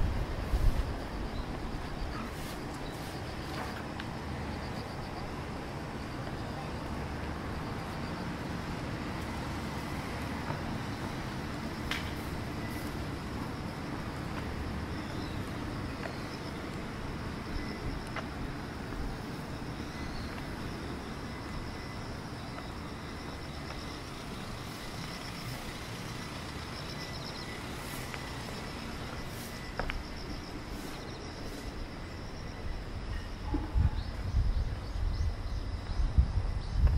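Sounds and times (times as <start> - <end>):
distant road traffic rumble: 0.0 - 36.9
insects chirping: 0.0 - 36.9.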